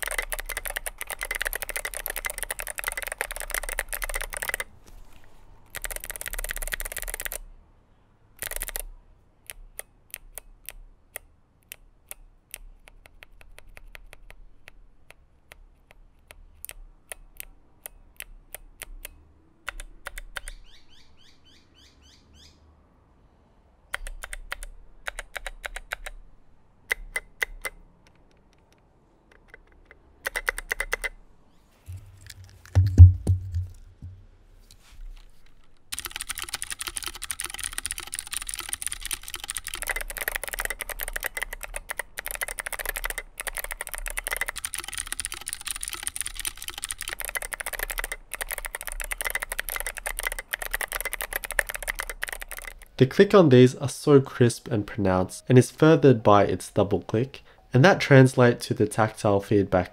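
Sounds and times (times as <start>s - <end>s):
mechanical keyboard typing clicks: 0.0s - 4.7s, 5.7s - 7.4s, 8.4s - 20.6s, 23.9s - 26.2s, 26.9s - 31.2s, 31.9s - 33.8s, 35.6s - 53.2s
loud low thump: 32.8s - 34.2s.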